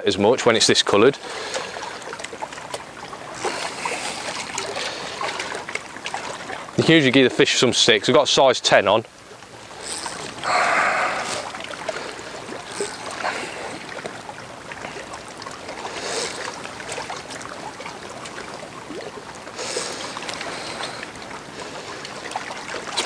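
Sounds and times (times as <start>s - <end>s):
water splashes: 0.0s - 23.0s
water lapping against stone: 0.9s - 8.0s, 9.0s - 23.0s.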